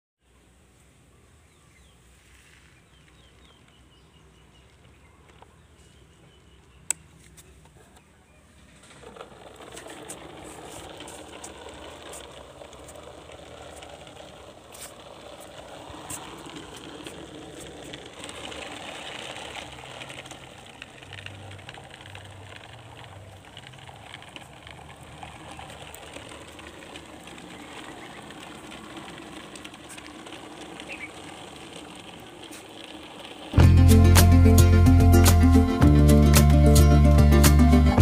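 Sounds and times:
toy truck motor whirring: 8.7 - 38.0.

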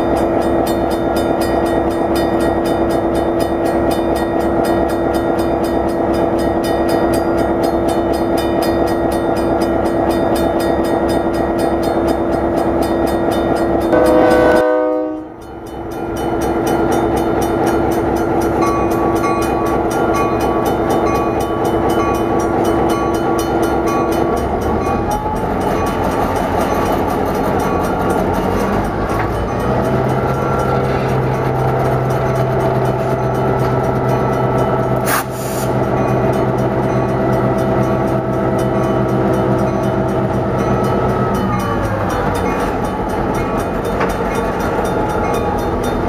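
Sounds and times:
diesel locomotive engine drone: 0.0 - 46.0
locomotive horn blast: 13.9 - 15.4.

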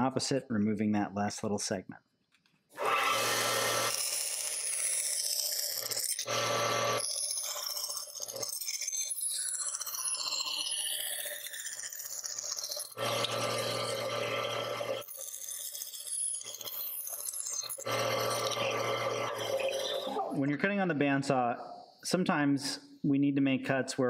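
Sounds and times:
bandsaw cutting plywood: 2.8 - 20.2.

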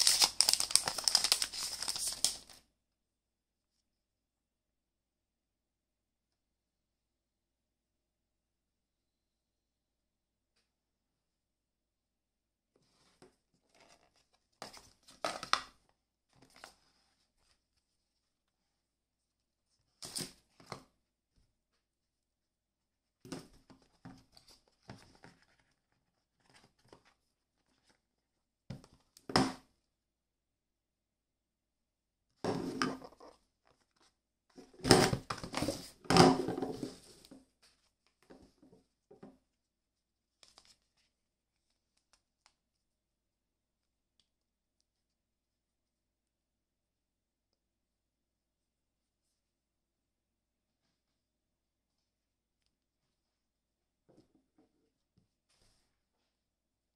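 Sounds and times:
packaging crinkling and rustling: 0.0 - 2.6.

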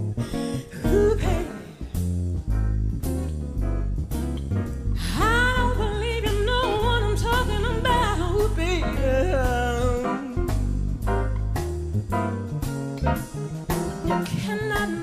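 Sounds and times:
jazz soul band playing: 0.0 - 15.0
high wordless singing: 0.8 - 1.8, 5.0 - 10.8.

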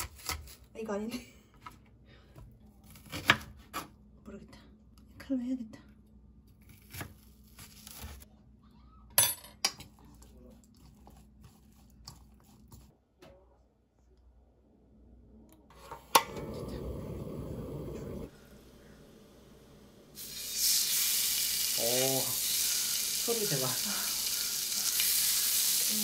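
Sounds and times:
food sizzling in a hot pan: 20.1 - 26.0.

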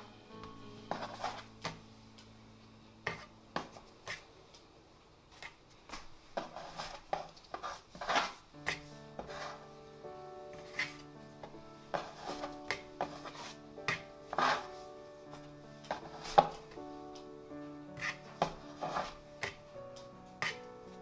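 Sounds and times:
soft background music: 0.0 - 4.3, 7.6 - 21.0
hands and tool working bread dough: 0.9 - 1.8, 3.0 - 4.3, 5.3 - 9.7, 10.5 - 17.3, 17.9 - 21.0.

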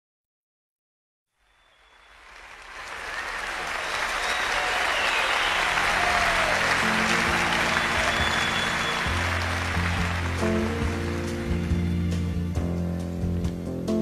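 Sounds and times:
whistles from crowd: 1.4 - 10.7
audience applauding: 1.5 - 12.6
band playing low notes: 5.6 - 14.0.

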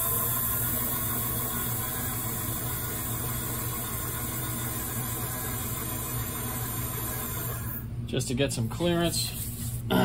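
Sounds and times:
low machine hum with hiss: 0.0 - 10.0.

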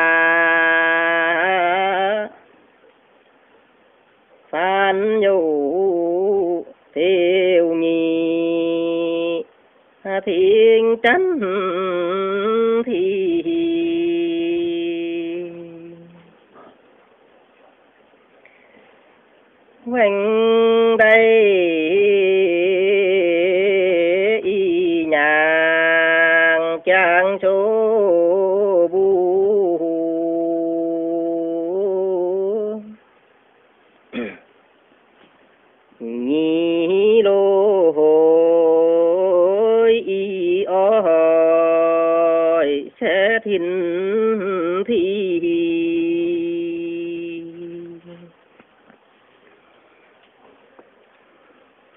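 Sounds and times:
man singing held notes: 4.4 - 16.8, 19.3 - 33.1, 36.0 - 48.7.

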